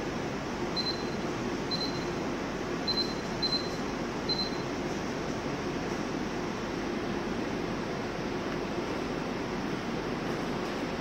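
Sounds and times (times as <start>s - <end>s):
steady background noise: 0.0s - 11.0s
short high control panel beeps: 0.8s - 2.2s, 2.9s - 4.6s.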